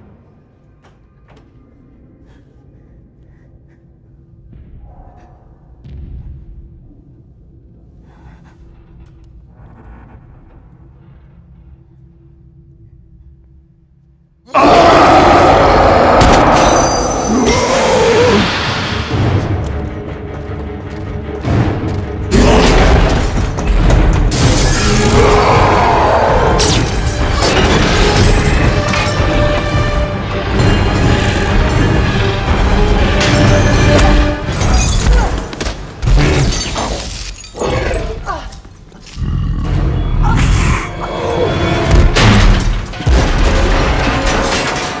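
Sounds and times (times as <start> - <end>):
dramatic orchestral score: 14.5 - 45.0.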